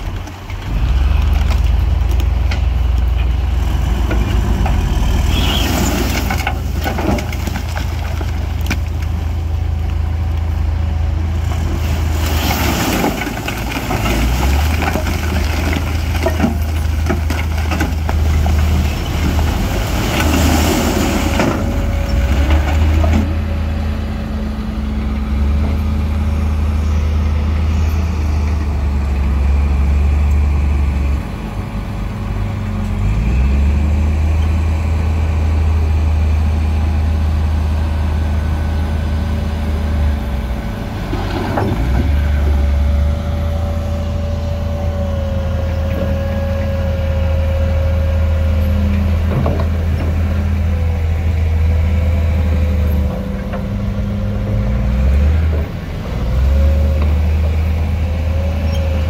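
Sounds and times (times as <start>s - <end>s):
bulldozer diesel engine running: 0.0s - 59.0s.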